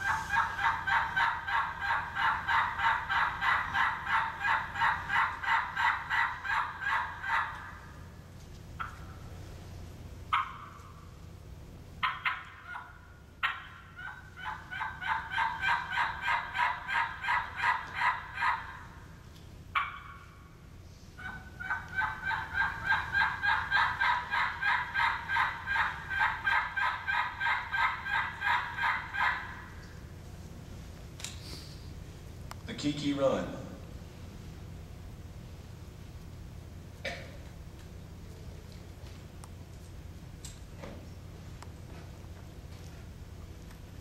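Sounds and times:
turkey call yelps: 0:00.0 - 0:08.2, 0:08.8 - 0:09.4, 0:10.3 - 0:11.2, 0:12.0 - 0:30.2.

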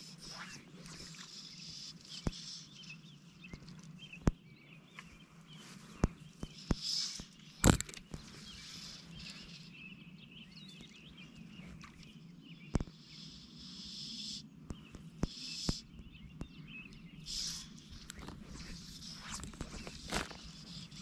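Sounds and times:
faint fluttering chirps: 0:00.0 - 0:21.0
steady high hiss: 0:17.2 - 0:21.0.

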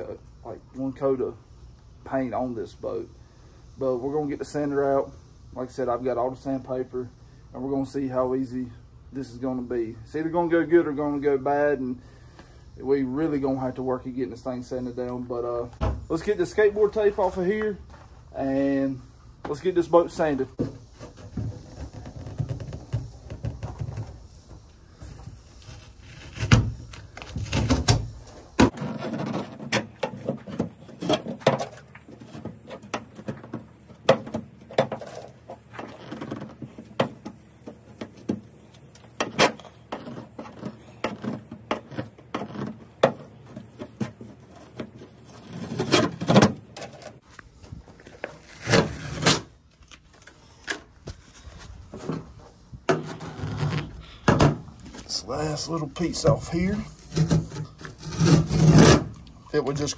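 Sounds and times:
scraper blade scraping metal: 0:56.9 - 0:59.1.

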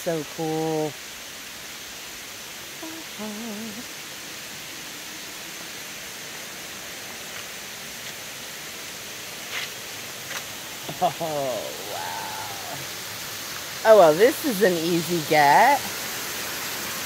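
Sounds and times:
waterfall rushing: 0:00.0 - 0:17.0
faint voice: 0:02.8 - 0:03.9, 0:11.0 - 0:12.9.

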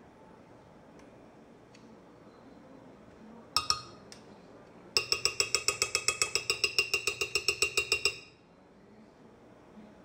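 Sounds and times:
spoon clinking on glass jar: 0:03.6 - 0:04.0, 0:05.0 - 0:08.4.

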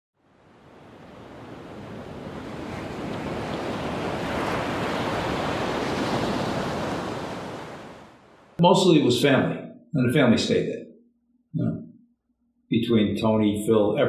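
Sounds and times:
waves surf: 0:00.2 - 0:09.0.

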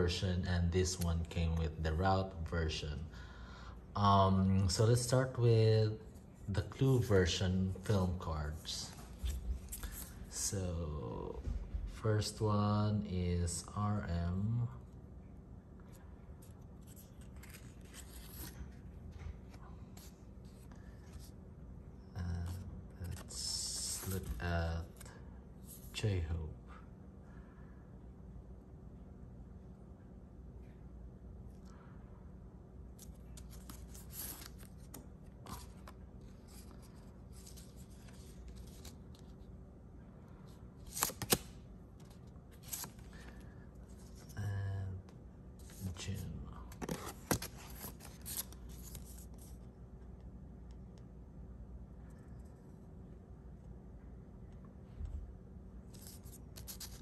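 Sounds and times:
cards rustling and shuffling: 0:00.8 - 0:01.6, 0:06.1 - 0:10.5, 0:15.8 - 0:21.3, 0:22.4 - 0:26.0, 0:32.9 - 0:39.5, 0:40.4 - 0:44.4, 0:45.6 - 0:49.7, 0:55.9 - 0:57.0.

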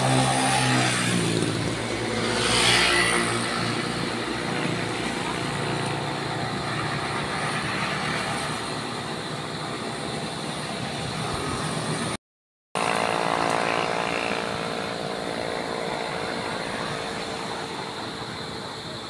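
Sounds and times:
motorcycle going past: 0:00.0 - 0:08.8, 0:12.8 - 0:17.8
vehicle passing close by: 0:00.0 - 0:08.8
vehicle engines running: 0:00.0 - 0:12.2.

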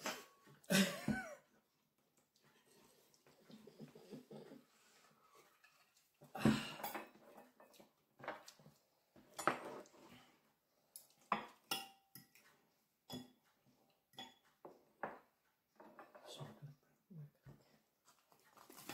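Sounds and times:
forks clinking on plates: 0:11.4 - 0:12.5.

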